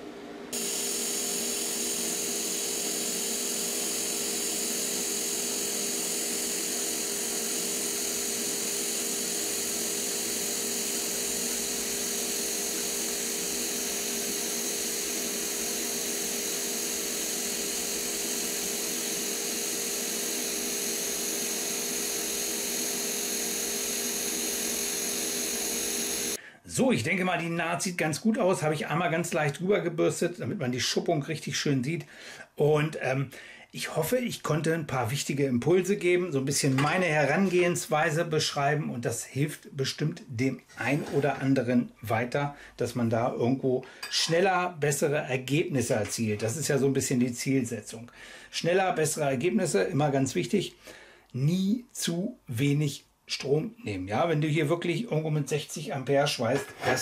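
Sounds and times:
welding arc humming and hissing: 0.5 - 26.4.

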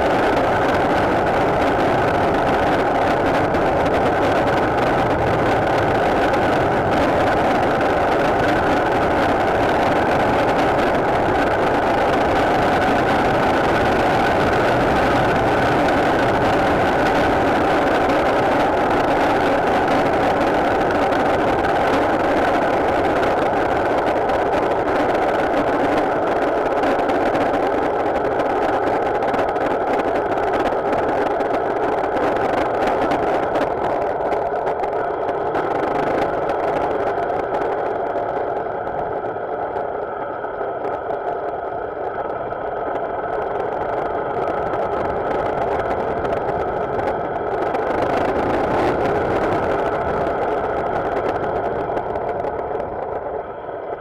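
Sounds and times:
motorcycle engine running: 0.0 - 24.9
road noise: 0.0 - 54.0
wind noise: 0.0 - 54.0.

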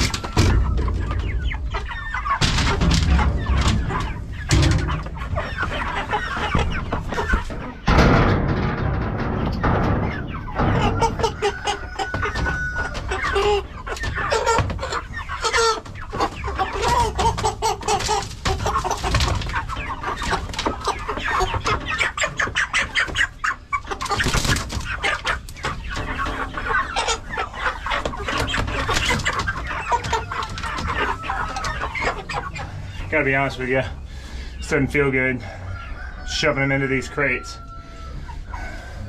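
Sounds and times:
chickens clucking and squawking: 0.0 - 39.0
knocks and wing flapping: 24.0 - 26.4.

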